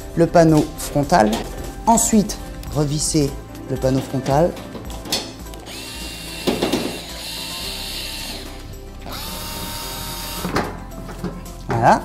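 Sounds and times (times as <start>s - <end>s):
cordless screwdriver whining: 5.5s - 10.8s.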